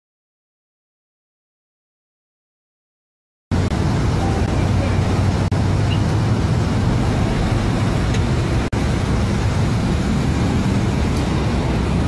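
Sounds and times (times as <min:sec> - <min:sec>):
motorcycle engine rumbling: 0:03.5 - 0:12.0
street traffic noise: 0:03.5 - 0:12.0.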